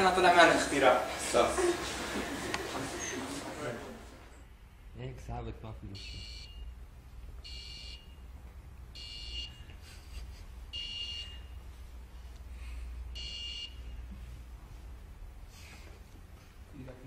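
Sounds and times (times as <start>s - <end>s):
high-pitched electronic buzzer beeps: 5.9s - 6.8s, 7.4s - 8.3s, 9.0s - 9.6s, 10.8s - 11.5s, 13.2s - 13.9s.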